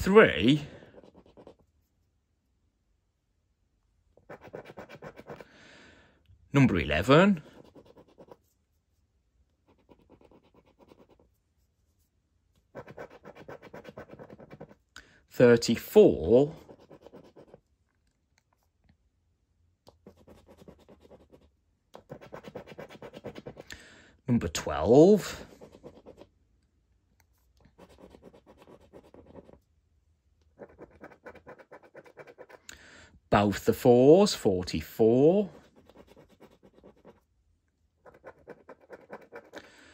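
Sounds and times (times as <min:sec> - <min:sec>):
scratching scratchcard coating: 0:00.0 - 0:01.7, 0:04.2 - 0:05.5, 0:06.8 - 0:08.7, 0:09.6 - 0:11.5, 0:12.6 - 0:14.9, 0:16.2 - 0:17.6, 0:19.9 - 0:23.7, 0:25.0 - 0:26.3, 0:27.7 - 0:29.7, 0:30.5 - 0:32.7, 0:35.2 - 0:37.3, 0:38.0 - 0:39.7.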